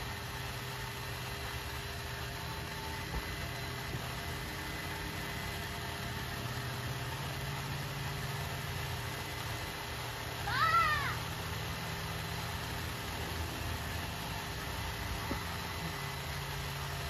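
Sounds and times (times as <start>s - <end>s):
electric pump motor humming: 0.0s - 17.0s.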